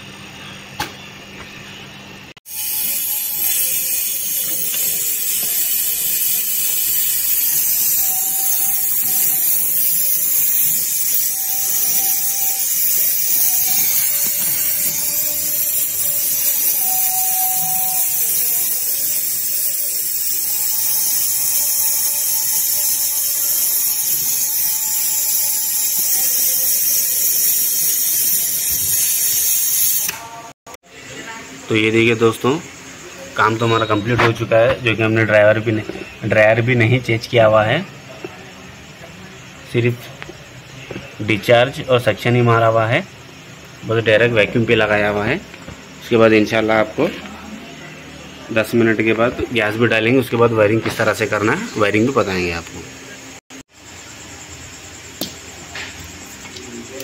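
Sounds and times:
torch flame hissing: 2.4s - 30.6s, 48.5s - 54.1s.

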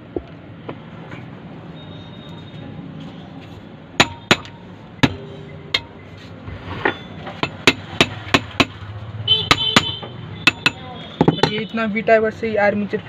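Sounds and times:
hammer knocking on metal: 4.0s - 6.0s, 7.4s - 8.8s, 9.4s - 11.7s.

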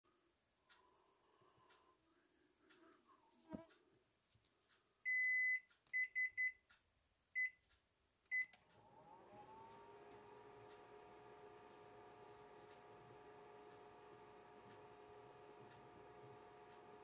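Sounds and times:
microwave control panel beeping: 5.1s - 6.6s, 8.3s - 8.6s
microwave oven humming: 8.3s - 17.0s.

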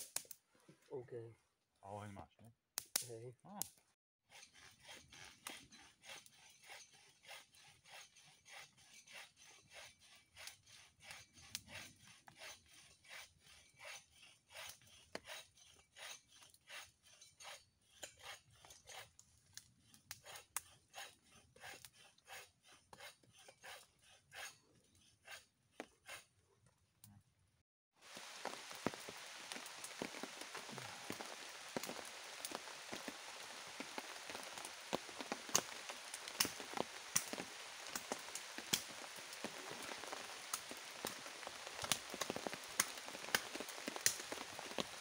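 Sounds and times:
hand saw cutting wood: 4.3s - 26.4s.

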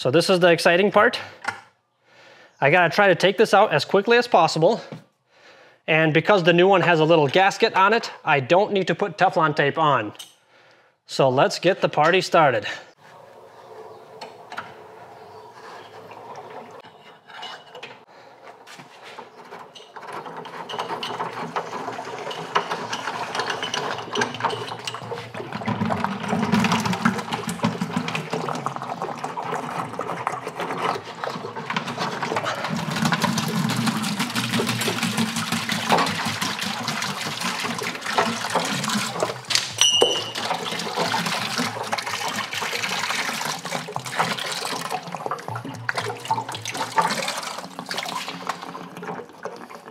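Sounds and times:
water gushing into a bucket: 20.2s - 49.9s.

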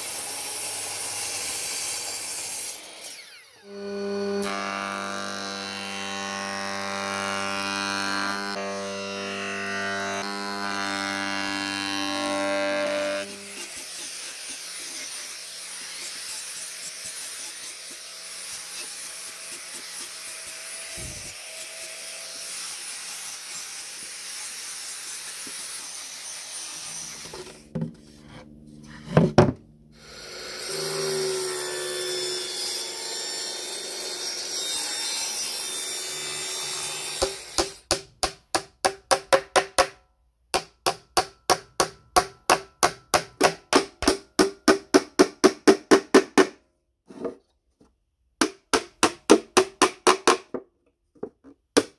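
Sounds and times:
mitre saw running: 0.0s - 27.6s, 30.0s - 37.8s
angle grinder sanding wood: 0.0s - 29.3s
hammer driving nails into wood: 40.6s - 46.6s, 48.4s - 50.6s.

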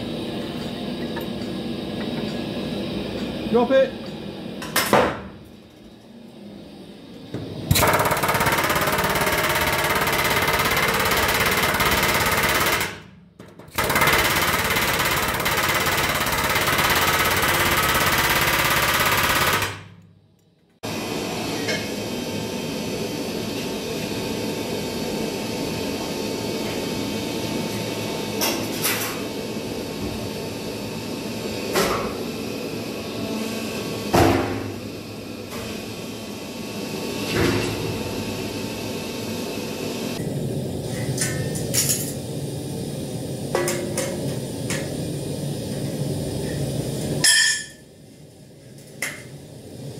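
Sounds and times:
steady machine noise: 5.5s - 20.0s.

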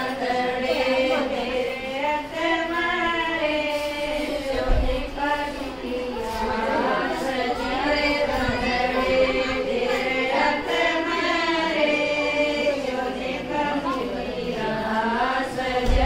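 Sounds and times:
women singing in chorus: 0.0s - 16.0s.

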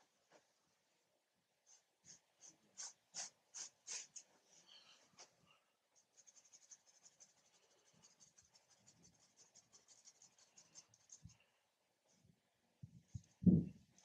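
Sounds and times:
paintbrush scratching on canvas: 1.7s - 4.3s, 6.0s - 11.4s.

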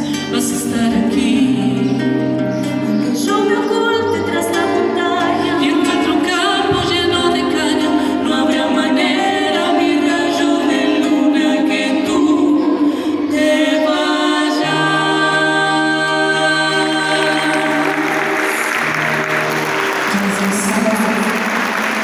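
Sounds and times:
duo singing: 0.0s - 22.0s
applause: 17.2s - 22.0s.

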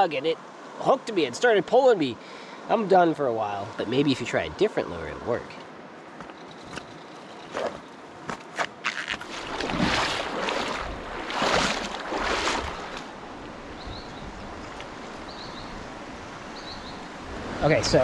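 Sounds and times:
creek flowing: 0.0s - 6.3s, 7.2s - 18.0s
feet splashing through creek: 6.2s - 16.1s.

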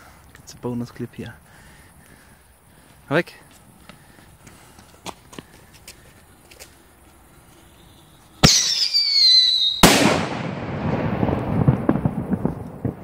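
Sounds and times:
firework crackles: 6.3s - 13.0s
screaming whistle falling in pitch: 8.4s - 9.8s
firework burst rumbling: 8.4s - 13.0s
firework launch bang: 8.4s - 13.0s.

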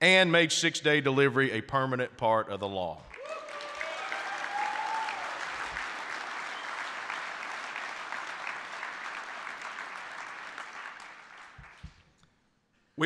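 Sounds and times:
audience applauding: 3.1s - 12.0s.

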